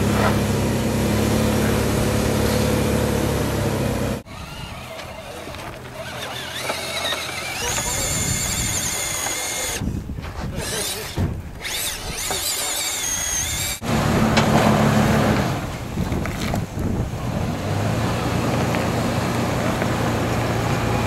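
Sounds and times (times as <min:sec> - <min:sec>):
truck engine running low: 0:00.0 - 0:09.8, 0:13.5 - 0:21.0
rc truck electric motor whining: 0:00.3 - 0:09.9, 0:10.6 - 0:14.3.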